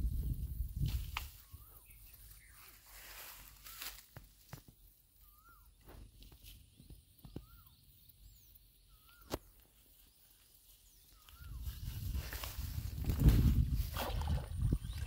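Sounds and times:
rustling through grass: 0:00.0 - 0:04.7, 0:09.4 - 0:14.5.

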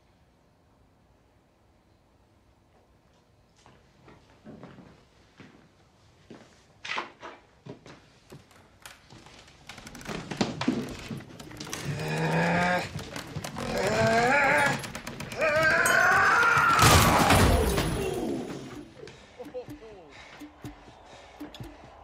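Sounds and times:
knocks and thuds: 0:10.0 - 0:19.0.

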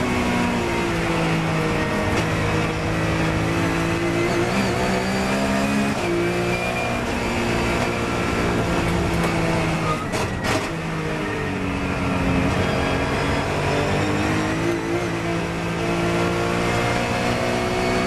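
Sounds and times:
race car engine accelerating: 0:00.0 - 0:18.0.

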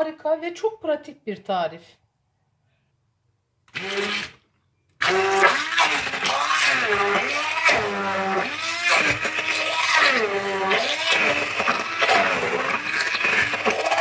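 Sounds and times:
electric hand blender running: 0:03.7 - 0:04.3, 0:05.0 - 0:14.0.

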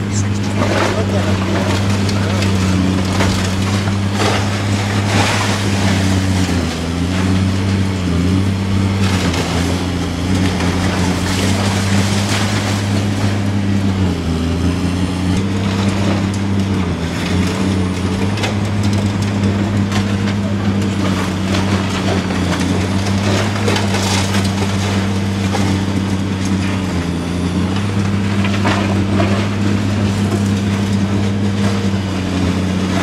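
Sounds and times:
concrete debris crunching: 0:00.0 - 0:33.0
excavator diesel engine running: 0:00.0 - 0:33.0.

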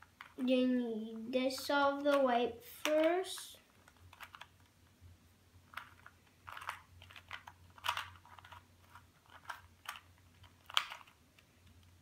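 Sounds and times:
puzzle cube clicking: 0:02.0 - 0:04.8, 0:05.7 - 0:11.9.

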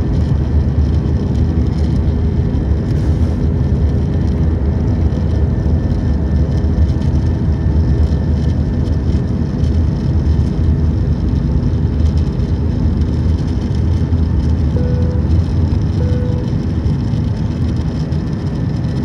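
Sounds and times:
jet engine cabin drone: 0:00.0 - 0:19.0
faint short tone: 0:14.8 - 0:15.3, 0:15.9 - 0:16.5.

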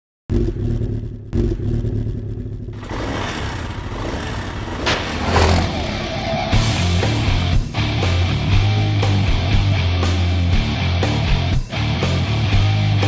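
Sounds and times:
motorcycle engine revving: 0:00.3 - 0:11.4.

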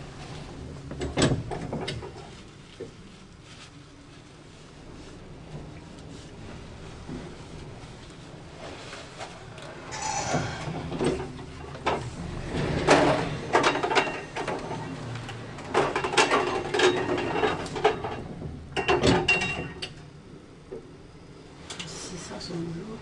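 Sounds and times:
lift doors sliding: 0:09.4 - 0:19.8.

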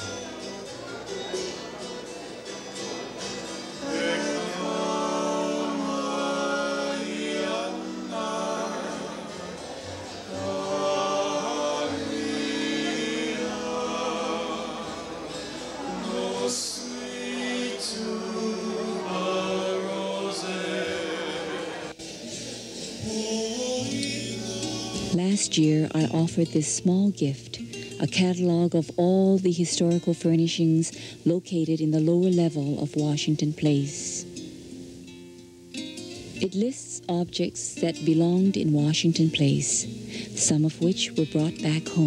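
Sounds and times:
string band playing: 0:00.0 - 0:26.6
men singing in harmony: 0:03.6 - 0:21.9, 0:22.9 - 0:25.2.

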